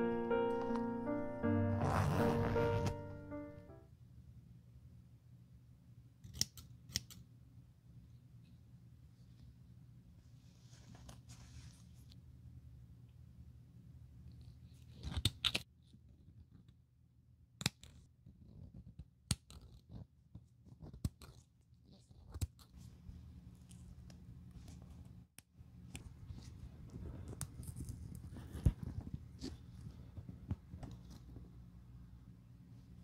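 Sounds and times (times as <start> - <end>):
small scissors snipping thread: 6.2 - 7.2.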